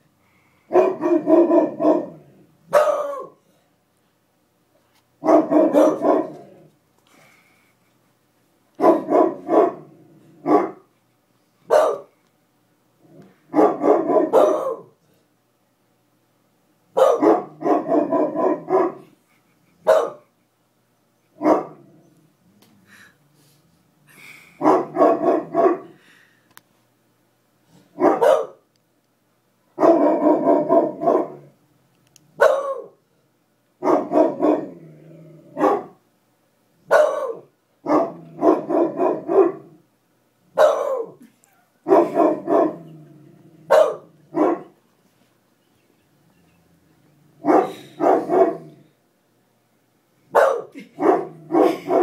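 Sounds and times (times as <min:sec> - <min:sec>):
dogs barking: 0:00.7 - 0:03.4, 0:05.2 - 0:06.5, 0:08.8 - 0:10.9, 0:11.7 - 0:12.1, 0:13.5 - 0:15.0, 0:17.0 - 0:19.2, 0:19.8 - 0:20.3, 0:21.3 - 0:21.8, 0:24.6 - 0:26.0, 0:28.0 - 0:28.6, 0:29.8 - 0:31.5, 0:32.4 - 0:33.0, 0:33.8 - 0:34.8, 0:35.5 - 0:36.0, 0:36.9 - 0:39.7, 0:40.6 - 0:41.2, 0:41.8 - 0:42.9, 0:43.7 - 0:44.8, 0:47.4 - 0:48.8, 0:50.3 - 0:52.0.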